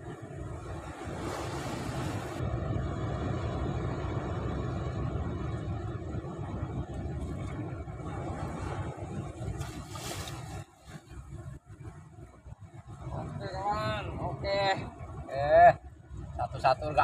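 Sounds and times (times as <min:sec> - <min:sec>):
sea surf washing: 0:00.0 - 0:12.0
wind rumbling on microphone: 0:00.0 - 0:17.0.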